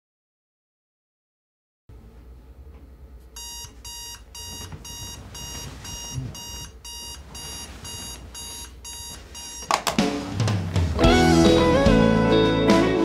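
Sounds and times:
alarm clock beeping: 3.4s - 9.7s.

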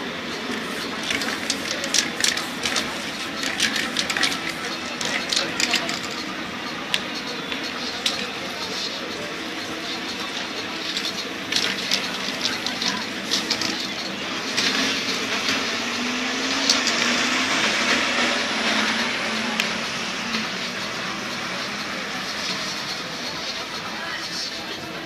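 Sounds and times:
bus engine passing: 0.0s - 25.0s
street traffic: 0.0s - 25.0s.

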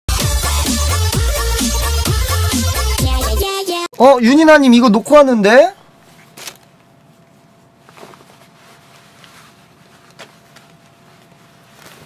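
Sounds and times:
low room hum: 4.0s - 12.0s
cloth rustling: 6.0s - 12.0s.

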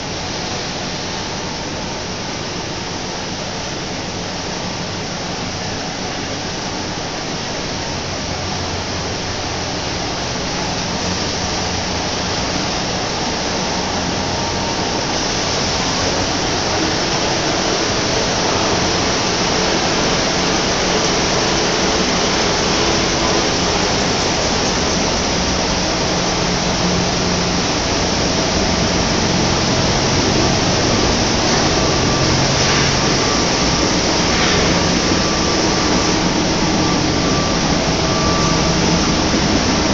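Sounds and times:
paper machinery rushing noise: 13.6s - 39.9s.

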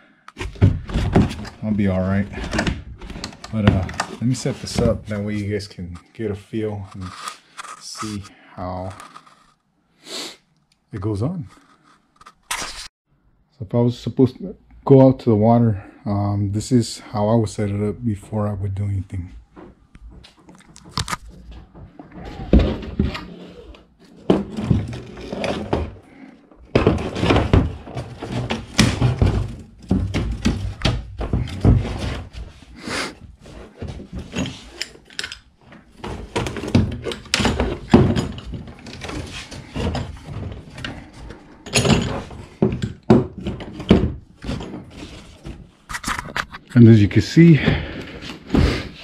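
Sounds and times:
plastic crate knocks and clatter: 0.4s - 5.2s, 26.7s - 32.5s
rustling: 0.4s - 9.6s.

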